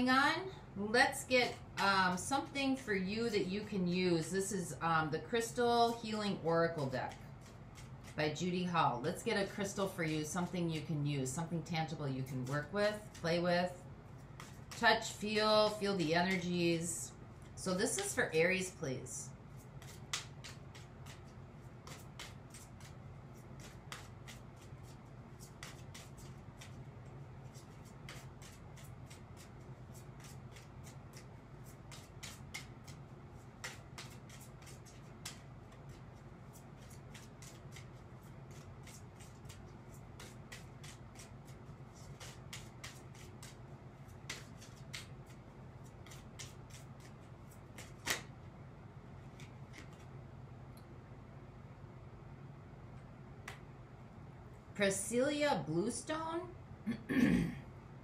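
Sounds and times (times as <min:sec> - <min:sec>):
low room hum: 0:00.0 - 0:58.0
cards being shuffled: 0:06.7 - 0:08.4, 0:14.2 - 0:16.6, 0:19.5 - 0:48.5, 0:49.3 - 0:50.2.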